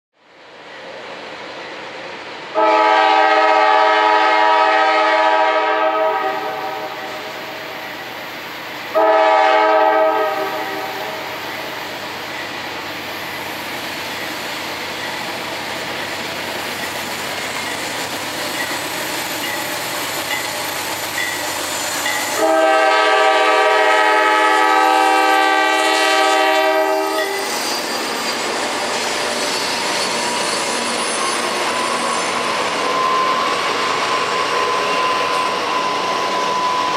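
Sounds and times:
train rumbling: 0.2 - 36.9
train wheels on rails: 0.2 - 36.9
locomotive air horn blasts: 2.6 - 7.3, 8.9 - 11.4, 22.4 - 27.5.

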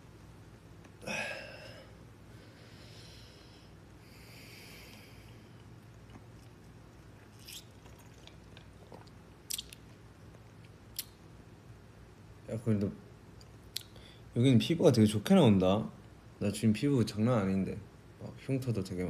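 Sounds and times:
sipping through a straw: 7.3 - 9.1.

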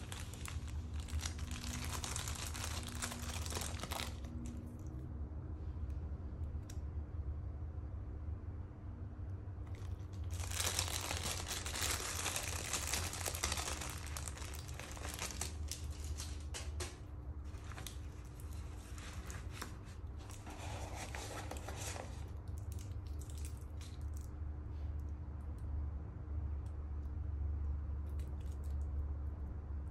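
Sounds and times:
plastic wrapping crinkling: 0.0 - 4.9, 9.7 - 24.3.

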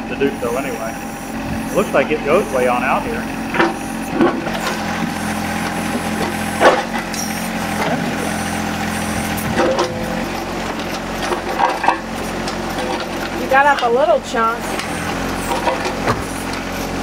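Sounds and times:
diesel tractor engine running: 0.0 - 17.0
bucket scraping concrete and gravel: 1.7 - 8.5, 9.5 - 17.0
bucket teeth grating: 14.6 - 17.0.

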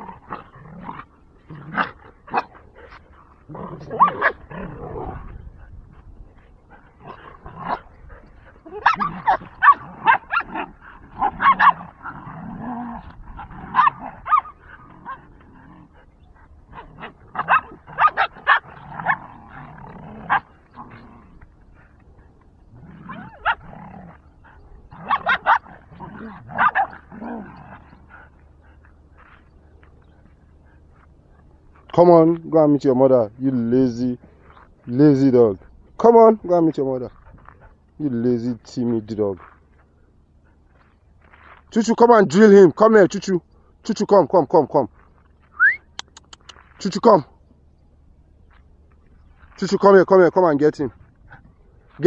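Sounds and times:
dogs barking: 0.0 - 5.6, 6.4 - 12.3, 13.0 - 22.0, 23.0 - 29.4
dogs growling: 0.0 - 41.7.

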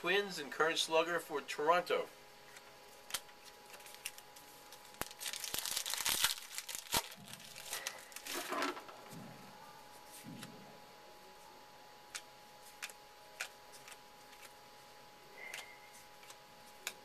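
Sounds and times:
cards rustling: 2.5 - 9.0, 12.1 - 14.7, 15.4 - 17.0
wrapper crinkling and tearing: 3.0 - 8.7.

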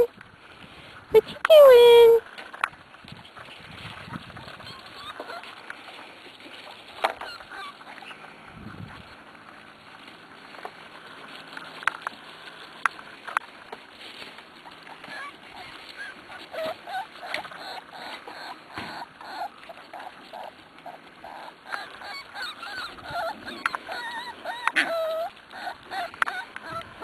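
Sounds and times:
puppies whining and yelping: 3.7 - 9.8, 13.4 - 27.0.

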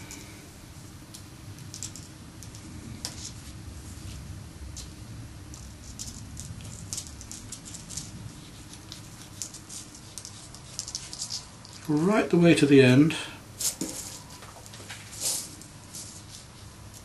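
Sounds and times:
wire scratching on fur: 5.6 - 11.9.

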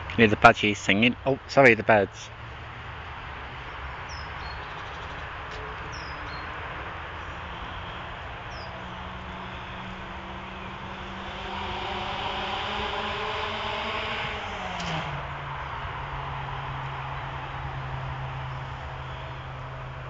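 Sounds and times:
road traffic rushing: 0.0 - 20.0
vehicle engine approaching: 4.6 - 20.0.

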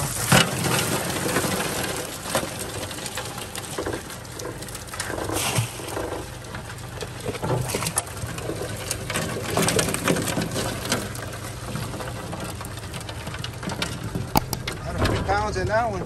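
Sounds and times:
boat motor running: 10.6 - 16.0.

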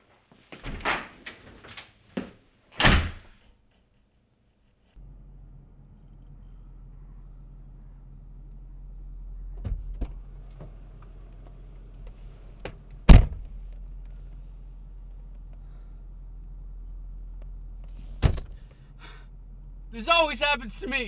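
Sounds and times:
car door slamming: 13.1 - 13.5.

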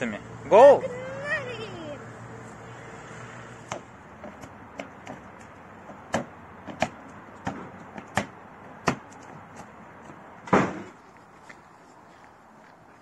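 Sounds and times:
footsteps: 9.0 - 13.0
loud thump: 10.5 - 11.0.

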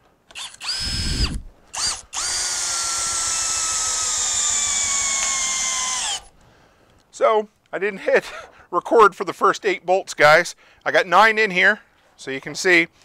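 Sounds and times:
cordless drill motor whine: 0.3 - 6.3.

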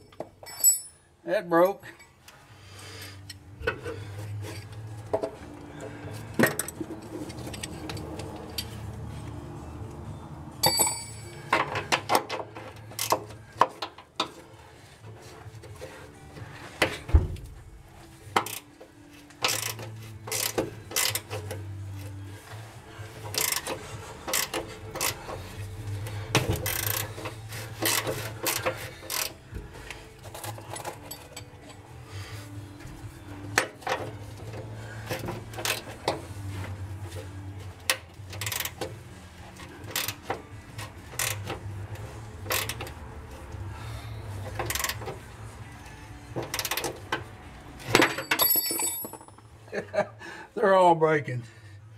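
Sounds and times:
wrench clicking on metal: 19.4 - 21.5, 23.3 - 25.2, 26.6 - 29.4, 37.9 - 38.8, 39.9 - 40.4, 41.1 - 41.6, 42.4 - 43.0, 44.6 - 45.1.

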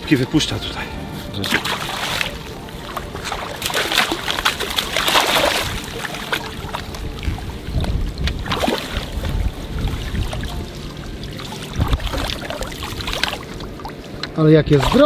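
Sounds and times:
water sloshing and splashing: 1.0 - 15.0
wind on microphone: 4.6 - 15.0.

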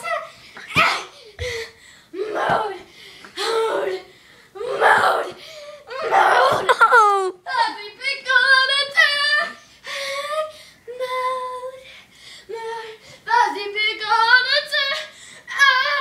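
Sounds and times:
child singing: 7.3 - 9.6, 10.2 - 11.8, 12.5 - 16.0.

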